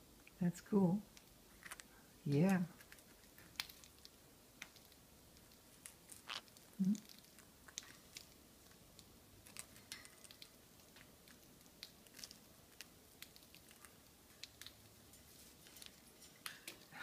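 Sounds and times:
birds nibbling food: 1.1 - 17.0.

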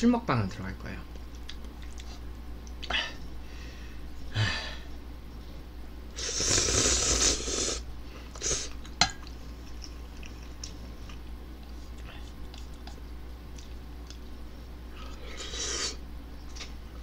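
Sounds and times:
slurping noodles: 6.2 - 7.8
sniffs: 6.2 - 8.7.

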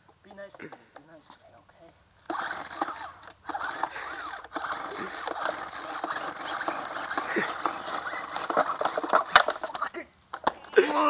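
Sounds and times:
starter cord whirring: 2.2 - 9.8.

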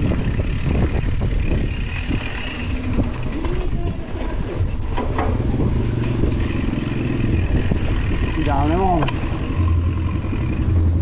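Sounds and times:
wind rumbling on microphone: 0.0 - 11.0
faint voices: 3.2 - 4.7.

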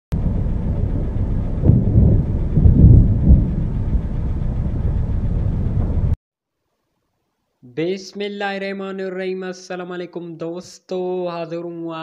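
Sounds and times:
thunder rumbling: 0.1 - 6.2.

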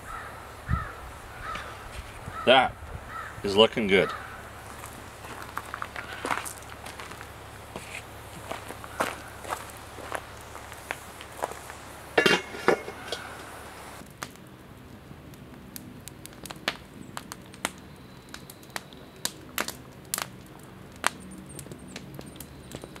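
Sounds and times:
metal grill lid clanking: 12.2 - 13.4.

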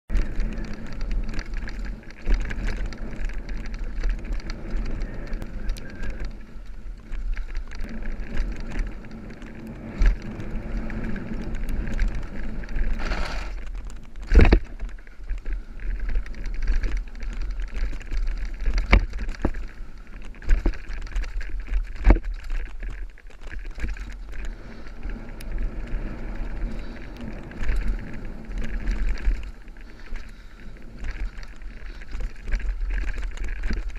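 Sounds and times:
low microphone rumble: 0.1 - 22.9, 23.7 - 33.9
bike knocking over bumps: 0.1 - 24.8
bike tyres crunching on gravel: 0.1 - 33.9.

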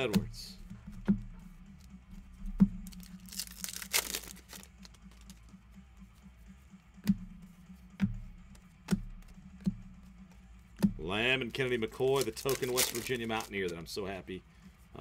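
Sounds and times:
cards tapping: 0.0 - 5.6, 10.8 - 13.9
foil pack tearing: 2.9 - 4.8, 12.0 - 13.7.

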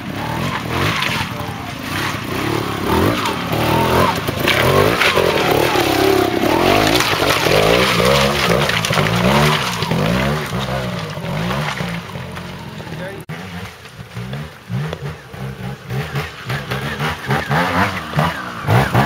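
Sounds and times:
motorcycle engine revving: 0.0 - 19.0.

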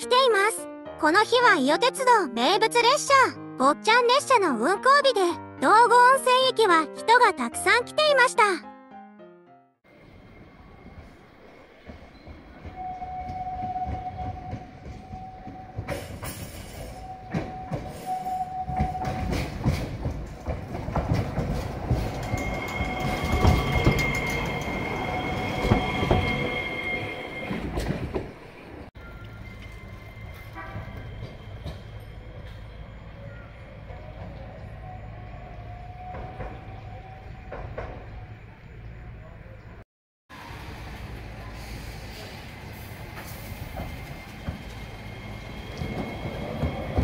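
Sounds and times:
tram wheels squealing: 9.9 - 39.6, 40.4 - 47.0
low hum of tram: 9.9 - 47.0
tram rumble: 9.9 - 47.0
rail joint clicks: 10.9 - 35.1, 36.0 - 38.5, 42.2 - 47.0.

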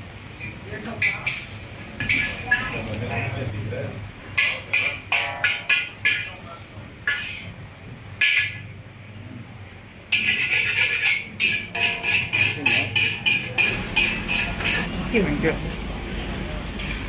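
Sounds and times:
metal spatula clanking on a wok: 0.4 - 3.4, 4.3 - 6.4, 7.0 - 7.6, 8.2 - 8.7, 10.1 - 14.9.

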